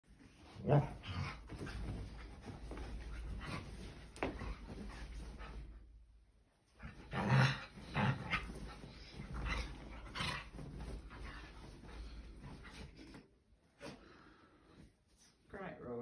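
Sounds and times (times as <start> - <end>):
duvet rustling: 0.1 - 5.9, 6.8 - 13.0
dog growling: 6.8 - 8.6.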